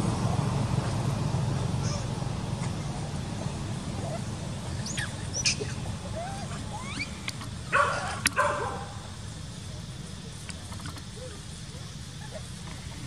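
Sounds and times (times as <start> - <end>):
high squeaky calls: 1.8 - 3.0, 3.9 - 9.0
dog barking: 7.7 - 9.0.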